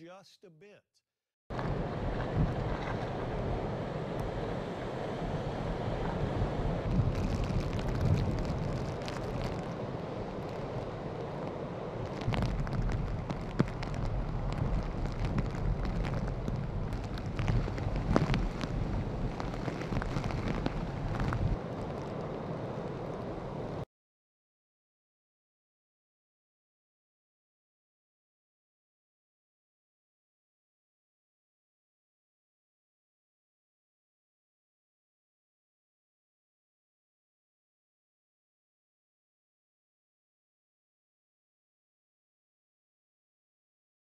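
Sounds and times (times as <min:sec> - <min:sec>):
strong wind gusting on microphone: 0:01.5 - 0:23.8
surf breaking on breakwater: 0:01.5 - 0:23.8.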